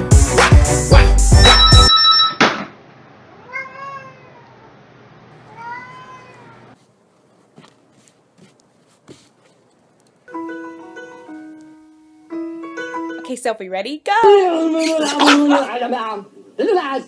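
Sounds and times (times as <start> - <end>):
cat meowing: 3.3 - 4.8, 5.4 - 6.8.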